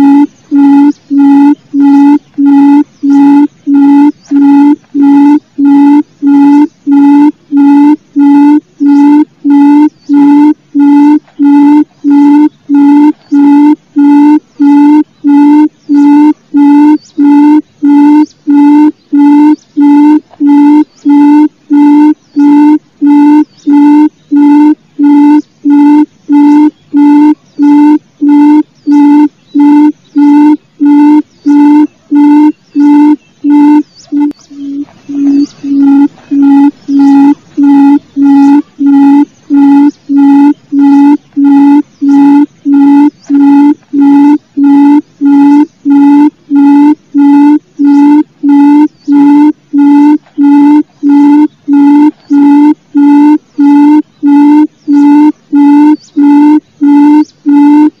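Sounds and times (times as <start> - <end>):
quail low hooting call: 0.0 - 58.0.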